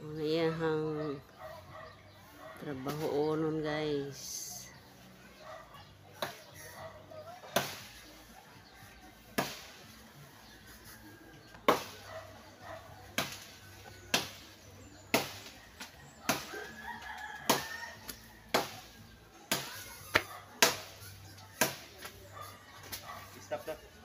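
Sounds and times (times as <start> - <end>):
blade chopping tree branch: 7.4 - 8.1, 9.3 - 9.9, 11.6 - 12.2, 13.1 - 22.2.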